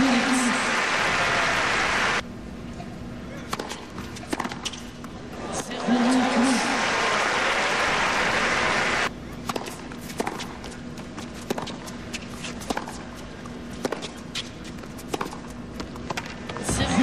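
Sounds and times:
racket striking tennis ball: 3.5s - 4.9s, 9.4s - 10.7s, 11.4s - 13.0s, 13.8s - 16.4s
footsteps and shoe scuffs on court: 9.3s - 16.6s.

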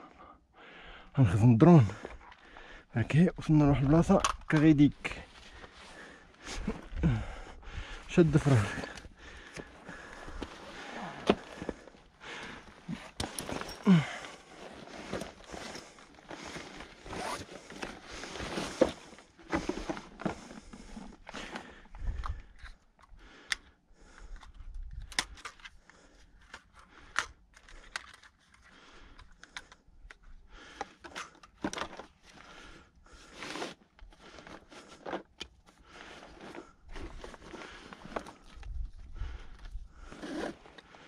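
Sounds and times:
clothing rustling: 9.6s - 21.3s
scrapes and crunches on rock: 39.6s - 41.0s.

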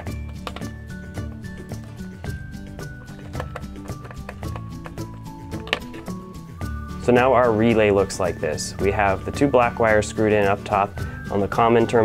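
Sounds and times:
background music held notes: 0.0s - 12.0s.

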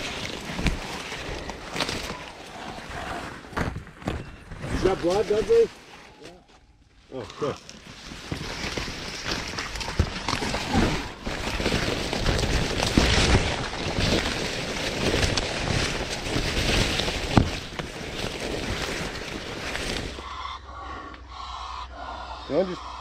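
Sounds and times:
leaves slapping: 0.0s - 6.1s, 7.3s - 20.2s
corn leaves rustling: 0.0s - 20.3s.

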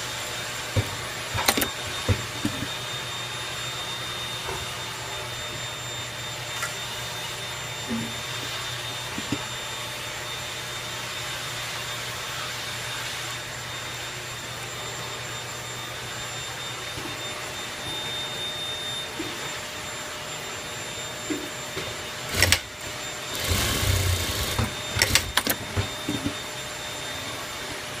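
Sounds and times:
sewing machine motor hum: 22.2s - 26.3s
sewing machine stitching: 22.3s - 22.7s, 23.3s - 25.6s.

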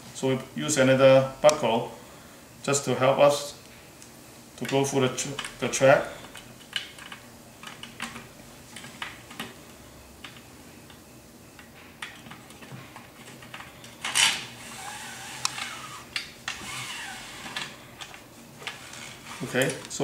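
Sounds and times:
belt sliding through curtain track: 14.5s - 17.7s, 18.6s - 19.8s.

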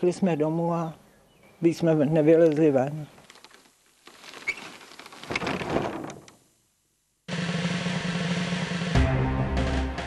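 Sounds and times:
wooden door scraping: 4.1s - 6.3s
background music: 7.3s - 10.0s.

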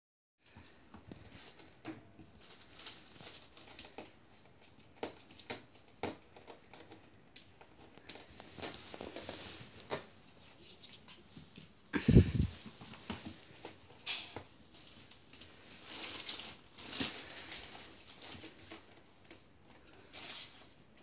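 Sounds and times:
puppy scratching plastic bag: 1.3s - 10.1s, 14.8s - 20.8s.

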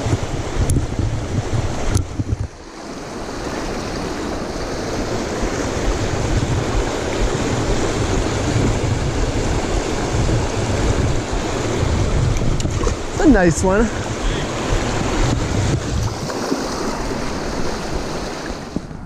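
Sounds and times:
water rushing over rocks: 0.0s - 18.9s.

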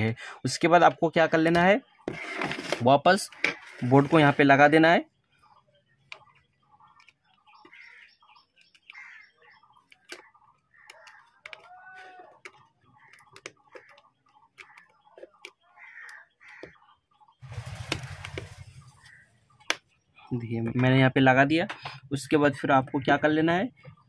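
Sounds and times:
small clicks and taps: 9.8s - 11.8s, 12.4s - 16.8s.

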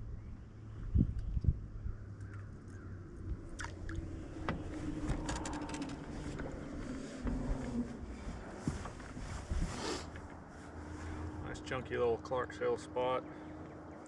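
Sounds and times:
wind: 0.0s - 14.0s
light clicks and rattles: 4.0s - 9.3s.

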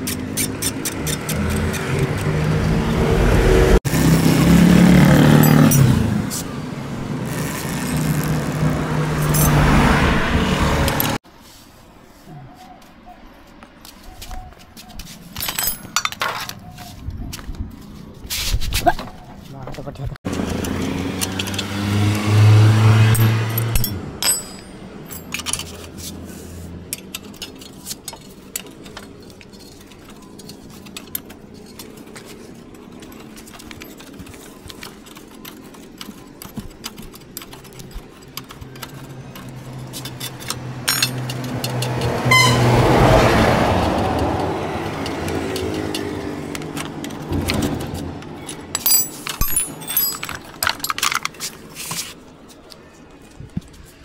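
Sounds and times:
vehicle engine humming: 0.0s - 11.3s, 19.5s - 54.0s
metallic clicks and jingles: 5.2s - 6.4s, 15.3s - 16.9s, 23.1s - 26.0s, 26.9s - 42.1s, 43.8s - 51.6s.

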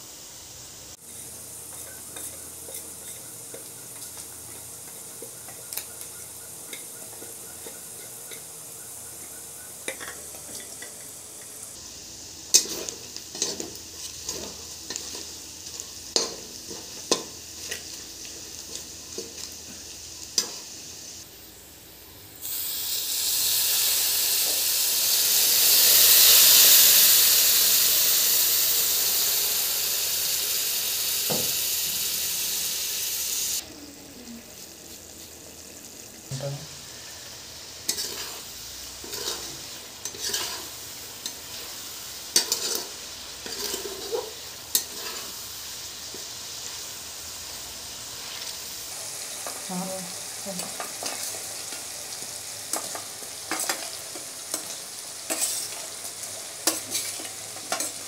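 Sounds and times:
onions frying gently: 0.0s - 58.0s
water sizzling in hot pan: 0.0s - 58.0s
metal spatula scraping pan: 37.9s - 38.4s, 39.0s - 40.7s, 42.4s - 45.4s.

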